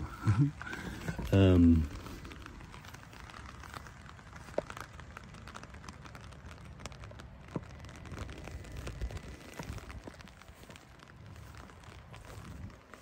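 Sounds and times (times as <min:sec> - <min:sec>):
light rain pattering: 0:00.0 - 0:13.0.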